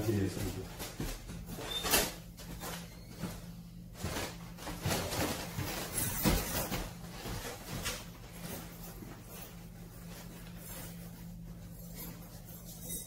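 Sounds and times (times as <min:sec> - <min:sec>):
steady low hum: 0:00.0 - 0:13.0
luggage knocking and rustling: 0:02.4 - 0:10.9.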